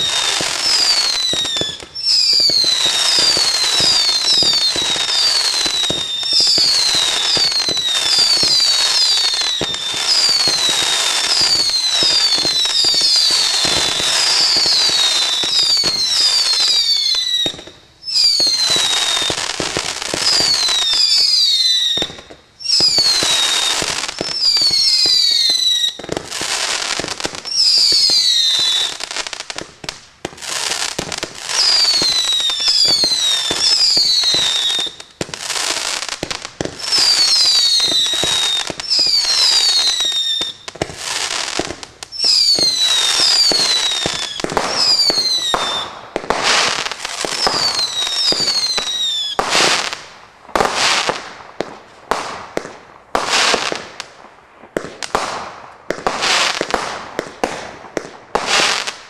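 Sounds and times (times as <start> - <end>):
firework whistles falling in pitch: 0.0 - 29.4, 30.4 - 50.0
firework shots firing: 21.9 - 54.1, 54.7 - 59.0.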